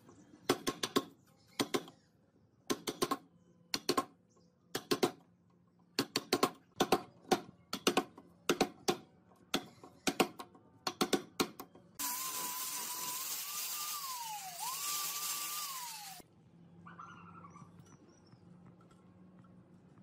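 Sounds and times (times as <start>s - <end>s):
angle grinder whining: 12.0s - 16.2s.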